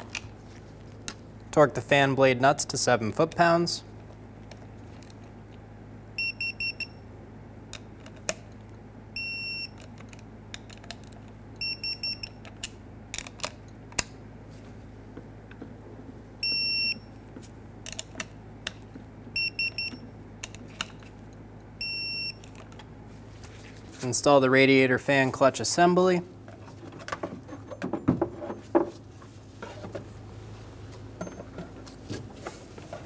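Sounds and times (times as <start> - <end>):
torque wrench beeps: 6.2 - 7.0, 9.2 - 9.8, 11.6 - 12.4, 16.4 - 17.1, 19.4 - 20.0, 21.8 - 22.4.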